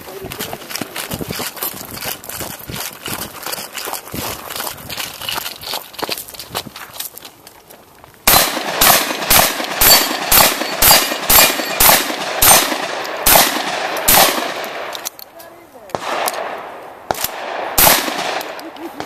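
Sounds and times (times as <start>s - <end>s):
shotgun shots: 8.2s - 15.0s, 15.9s - 19.0s.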